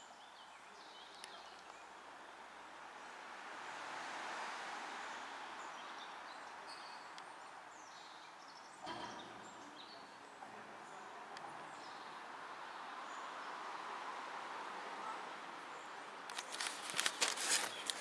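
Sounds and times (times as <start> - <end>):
outdoor background noise: 0.0 - 18.0
birds chirping: 15.0 - 18.0.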